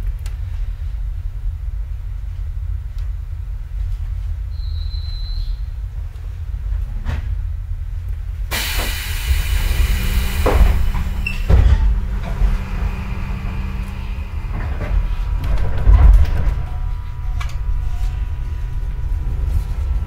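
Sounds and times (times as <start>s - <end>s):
railcar low rumble: 0.0s - 20.0s
compressed air hiss: 8.5s - 15.3s.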